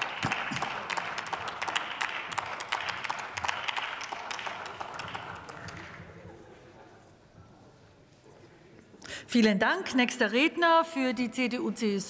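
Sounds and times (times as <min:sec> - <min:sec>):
scattered applause: 0:00.0 - 0:06.4.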